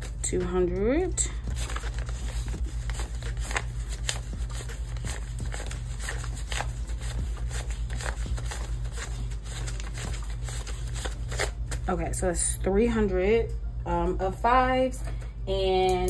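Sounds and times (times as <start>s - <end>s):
banknotes counted by hand: 0.0s - 12.0s
steady low hum: 0.0s - 16.0s.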